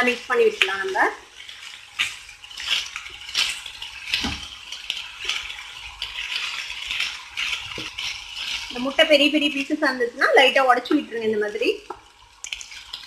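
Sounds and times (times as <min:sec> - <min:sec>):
spatula scraping rice in pan: 0:01.4 - 0:09.7.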